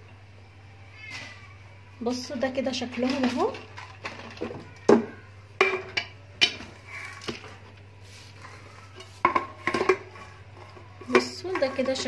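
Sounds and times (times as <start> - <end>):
tin canisters clinking: 8.9 - 12.0.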